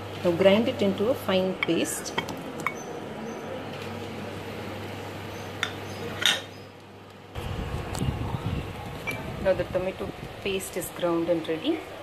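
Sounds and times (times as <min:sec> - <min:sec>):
steady low hum: 0:06.6 - 0:12.0.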